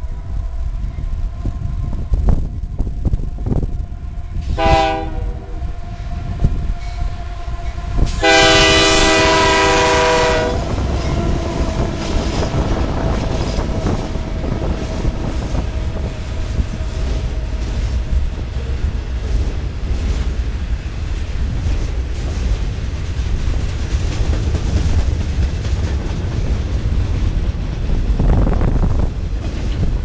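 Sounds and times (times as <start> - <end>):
freight train rumbling past: 0.0 - 30.0
locomotive air horn blasts: 3.5 - 17.5
train cars clicking: 6.4 - 30.0.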